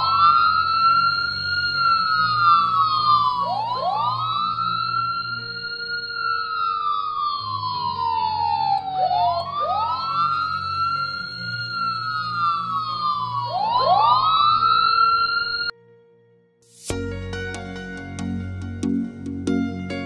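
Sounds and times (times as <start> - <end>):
police sirens wailing: 0.0 - 15.7.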